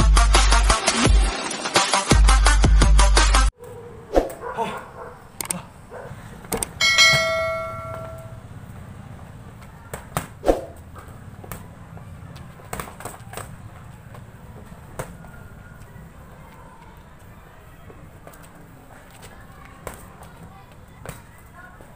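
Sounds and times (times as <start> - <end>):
notification bell ding: 6.8 - 8.4.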